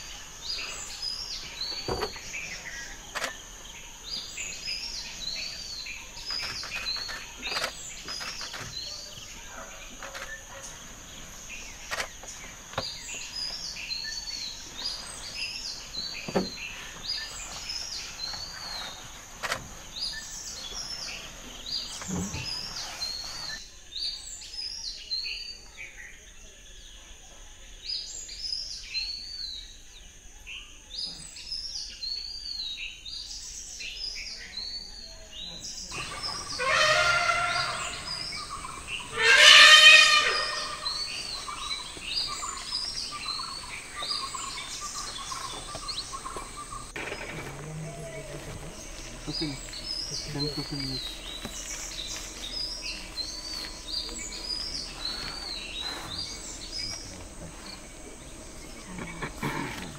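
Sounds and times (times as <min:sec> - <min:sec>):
high insect buzz: 0:00.0 - 0:23.6, 0:35.9 - 0:59.9
bird chirping: 0:00.0 - 0:27.0, 0:27.9 - 0:59.9.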